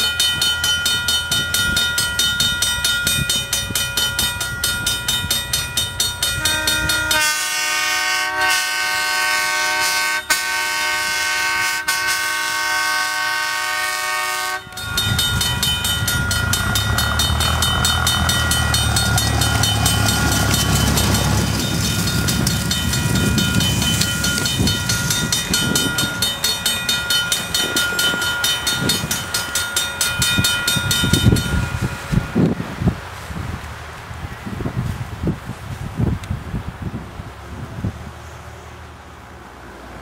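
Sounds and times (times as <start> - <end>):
train rumble: 0.0 - 40.0
train horn blast: 6.2 - 15.2.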